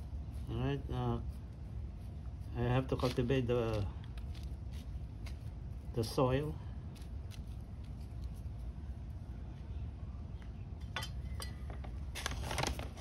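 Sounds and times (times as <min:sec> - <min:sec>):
garden tool scraping soil: 0:00.0 - 0:06.1
steady low hum: 0:00.0 - 0:13.0.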